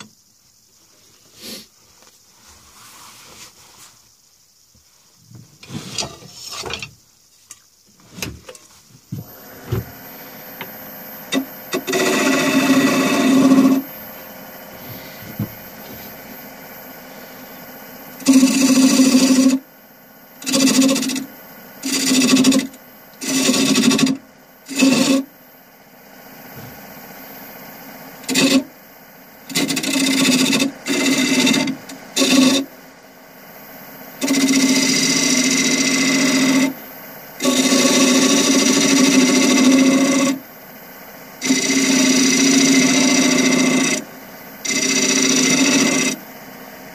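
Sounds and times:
turning tool cutting wood: 9.2s - 14.0s, 18.2s - 19.7s, 20.4s - 25.3s, 28.2s - 28.8s, 29.4s - 32.7s, 34.2s - 36.8s, 37.4s - 40.4s, 41.4s - 46.2s
wood lathe humming: 9.2s - 19.7s, 20.4s - 25.4s, 28.2s - 28.8s, 29.4s - 32.8s, 34.1s - 40.5s, 41.4s - 46.3s.

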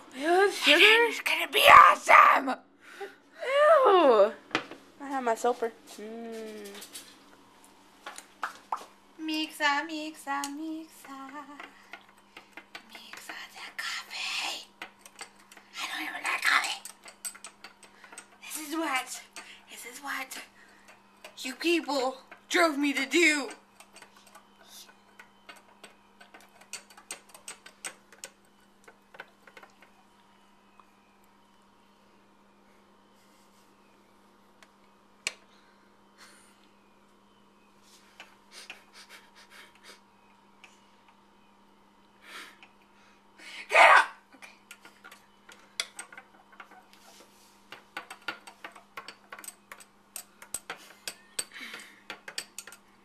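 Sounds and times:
spoon clinking against glass: 16.8s - 18.4s, 23.5s - 28.4s, 48.0s - 52.8s
spoon scraping metal bowl: 23.5s - 28.2s.

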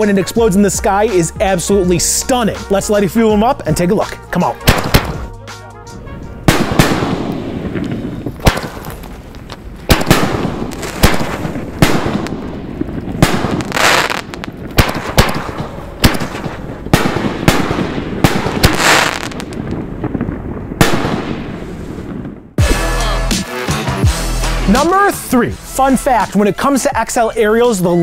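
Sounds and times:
fireworks booming: 0.0s - 22.9s.

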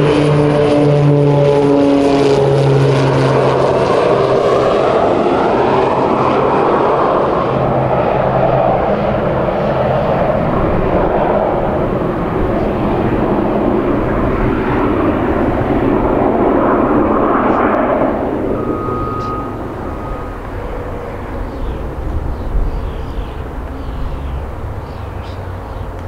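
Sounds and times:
aircraft piston engines droning: 0.0s - 26.0s.

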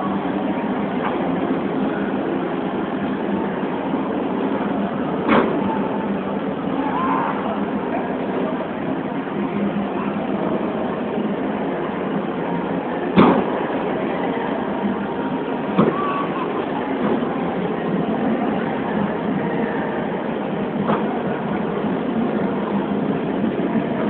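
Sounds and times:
crowd in large hall: 0.0s - 24.0s.

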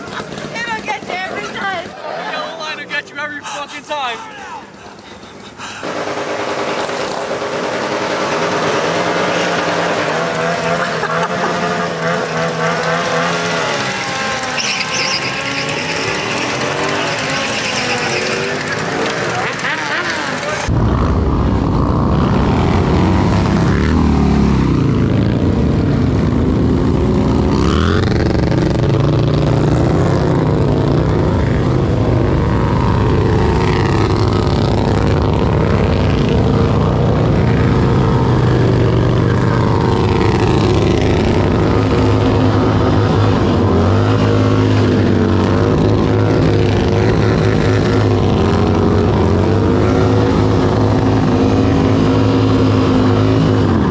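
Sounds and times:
motorcycle engines revving: 0.0s - 53.9s
tyres spinning: 4.8s - 20.7s.

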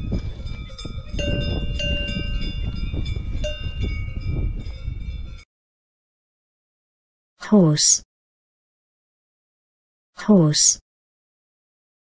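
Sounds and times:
cow bell clanking: 0.0s - 5.4s.

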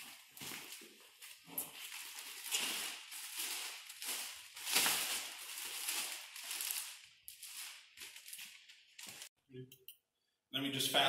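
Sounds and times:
plastic sheet crinkling: 0.0s - 9.3s.

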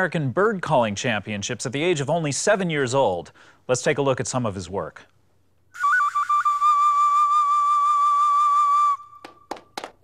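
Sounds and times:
boy whistling bird call: 5.8s - 9.5s.

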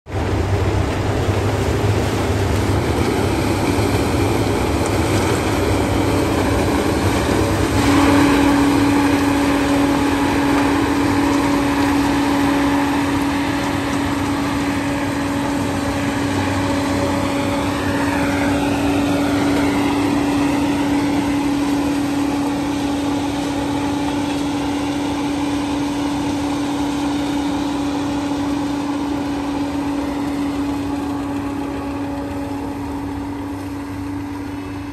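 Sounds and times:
harvester engine under load: 0.1s - 34.9s
steady hum: 0.1s - 34.9s.

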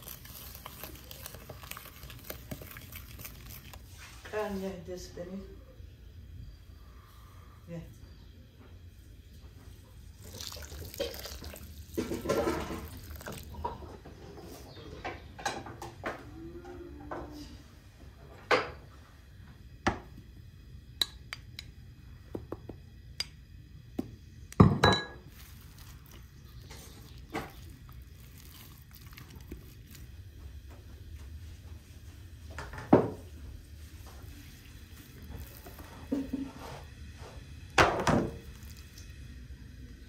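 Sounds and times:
glass bowl and dishes clinking: 24.7s - 25.2s.

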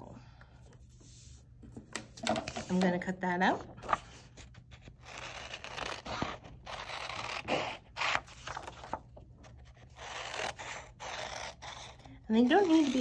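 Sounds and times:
scissors cutting paper: 4.8s - 13.0s.

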